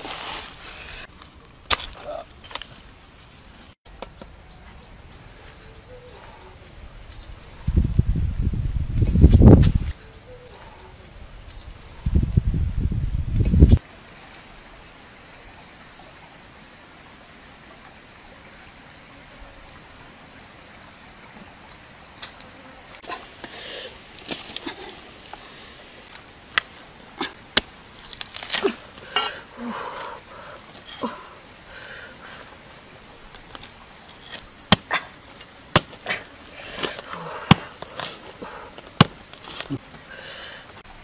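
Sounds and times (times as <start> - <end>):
knife chopping into fruit husk: 34.7 - 38.2, 39.0 - 39.3.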